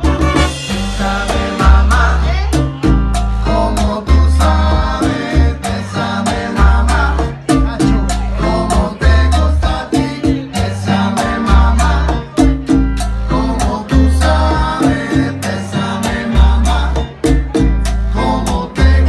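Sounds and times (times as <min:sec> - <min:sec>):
congas struck by hand: 0:00.0 - 0:10.6
bass line: 0:00.0 - 0:19.0
person singing: 0:00.7 - 0:12.6, 0:13.3 - 0:19.0.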